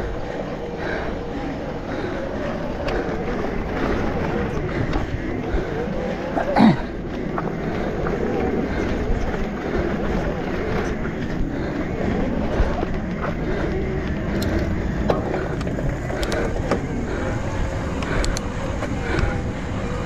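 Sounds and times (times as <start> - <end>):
tyres rolling on dirt: 0.0 - 20.0
wind rumble on microphone: 0.0 - 20.0
bike clicking and knocking: 10.6 - 19.5.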